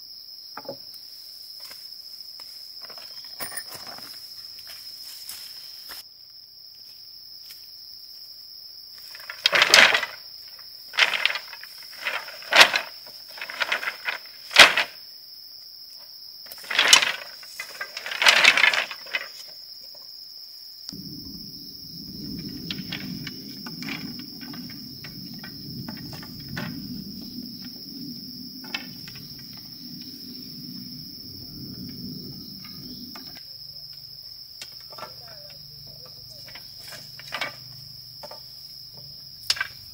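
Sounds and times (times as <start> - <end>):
insects chirring: 0.0 - 39.9
low rough noise: 21.0 - 33.4.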